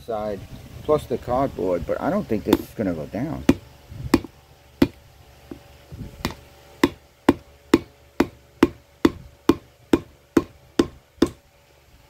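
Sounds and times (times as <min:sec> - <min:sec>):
hammer tapping on metal: 0:06.2 - 0:11.4.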